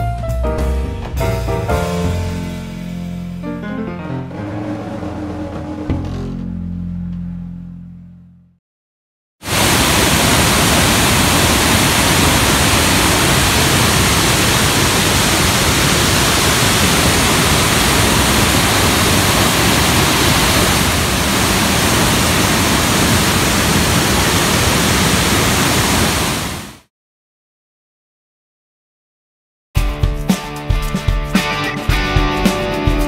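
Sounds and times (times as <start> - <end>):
waterfall rushing: 9.4 - 26.9.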